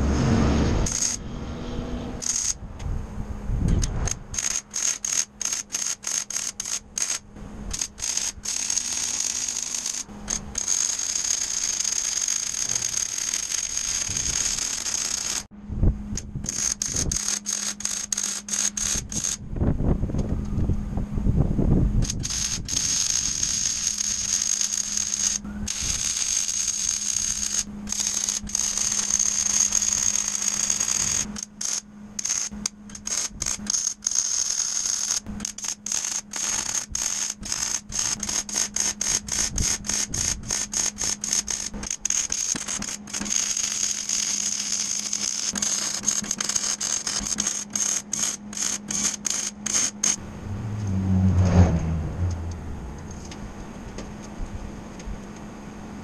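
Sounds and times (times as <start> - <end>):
welding arc crackling: 0.0 - 1.3, 2.2 - 2.6, 3.7 - 15.5, 16.2 - 19.4, 22.0 - 50.2
loud low rumble: 0.0 - 4.3, 50.2 - 54.8
low hum: 0.0 - 4.5, 15.4 - 23.4, 50.1 - 56.0
high whine: 0.0 - 5.4, 15.4 - 34.1, 49.6 - 56.0.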